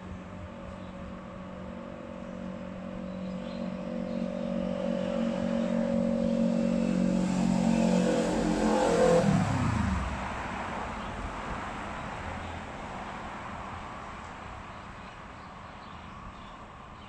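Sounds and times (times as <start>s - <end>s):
motorcycle passing: 0.0s - 12.8s
car tyres on road: 0.0s - 17.0s.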